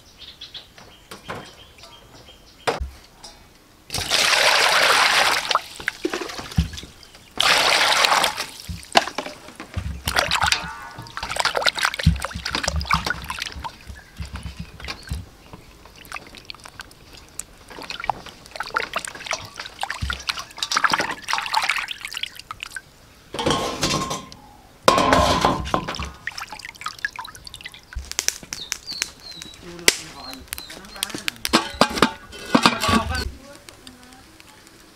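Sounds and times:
water pouring into metal bowl: 0:03.9 - 0:06.6
water splashing and dripping: 0:03.9 - 0:24.2, 0:24.9 - 0:34.9.

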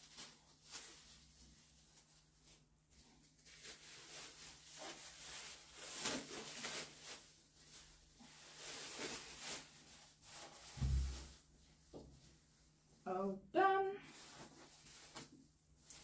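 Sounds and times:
plastic apron rustling: 0:00.0 - 0:13.0, 0:13.6 - 0:16.0
dull thump: 0:10.8 - 0:11.3.

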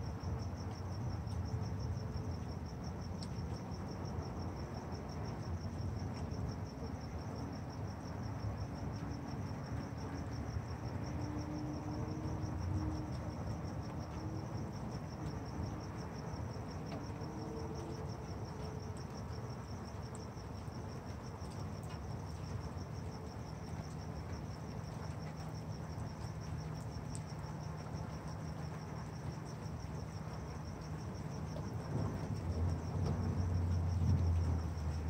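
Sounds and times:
crickets chirping: 0:00.0 - 0:35.0
low background rumble: 0:25.9 - 0:35.0.

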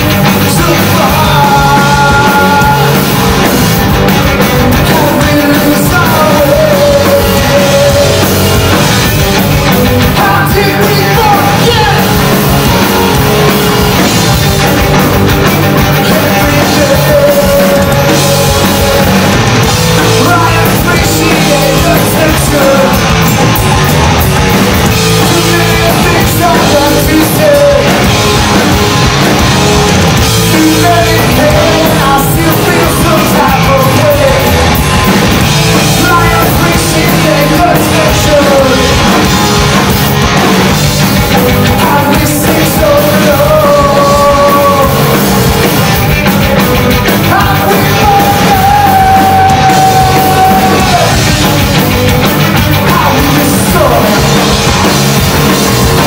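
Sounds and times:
singer's vocals: 0:00.0 - 0:03.4, 0:04.5 - 0:08.8, 0:09.9 - 0:13.8, 0:15.6 - 0:23.3, 0:25.0 - 0:29.0, 0:30.2 - 0:35.0, 0:35.6 - 0:40.0, 0:41.4 - 0:46.0, 0:47.2 - 0:51.7, 0:52.6 - 0:56.0
drum kit: 0:00.0 - 0:56.0
electric guitars: 0:00.0 - 0:56.0.

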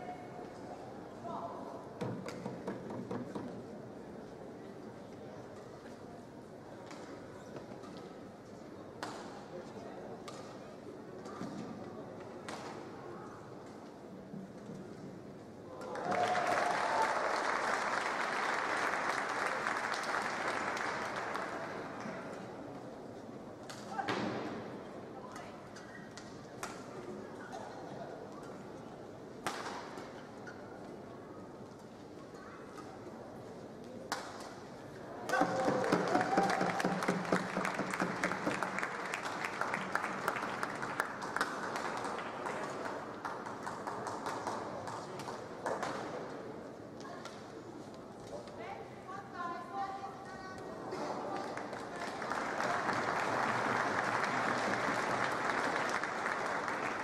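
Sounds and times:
spectators applauding: 0:15.9 - 0:22.0, 0:35.4 - 0:44.3, 0:51.4 - 0:57.0.

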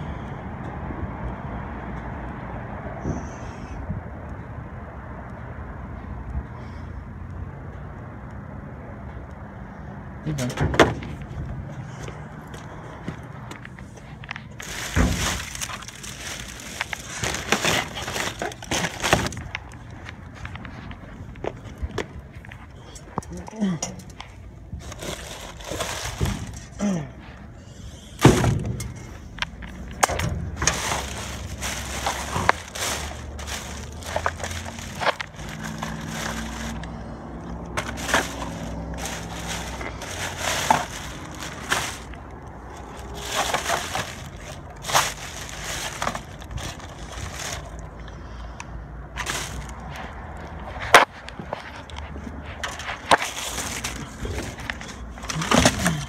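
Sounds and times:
plastic trash bags crinkling: 0:14.3 - 0:20.0, 0:24.7 - 0:26.8, 0:29.6 - 0:36.9, 0:37.5 - 0:48.0, 0:49.1 - 0:50.1, 0:52.6 - 0:56.0
knocks and clunks of debris: 0:14.6 - 0:19.6, 0:52.6 - 0:56.0.

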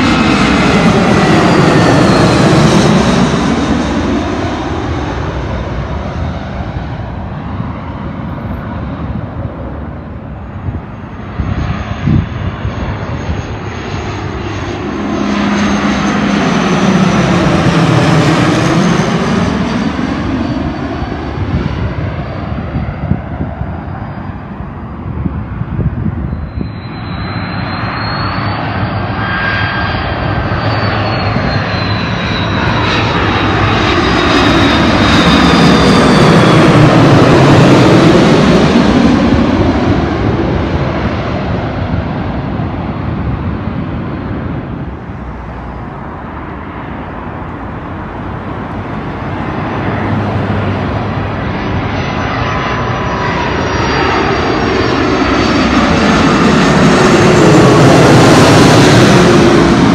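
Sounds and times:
jet airliner passing overhead: 0:00.0 - 0:59.9
second airliner engines: 0:00.0 - 0:59.9
high engine whine sliding down: 0:25.7 - 0:59.9.

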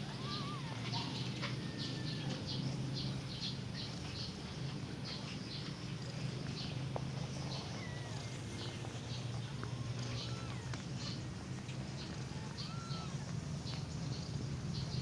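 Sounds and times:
kittens squeaking and mewing: 0:00.0 - 0:02.7, 0:07.4 - 0:11.4, 0:12.0 - 0:13.3.

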